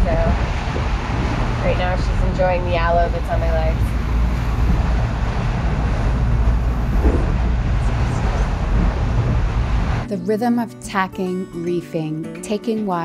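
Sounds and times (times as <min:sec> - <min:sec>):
rough sea rushing along hulls: 0:00.0 - 0:10.1
wind buffeting microphone: 0:00.0 - 0:10.1.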